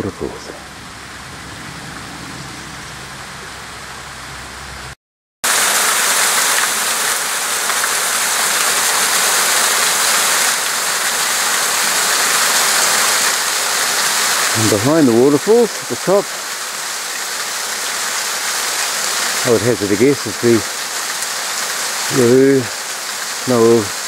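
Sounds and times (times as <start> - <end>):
waterfall splashing into pool: 5.4 - 24.0.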